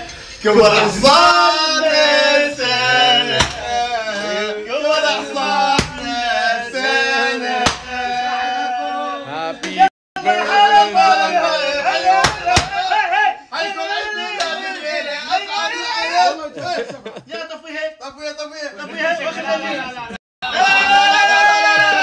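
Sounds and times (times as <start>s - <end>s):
men singing together: 0.4s - 12.8s.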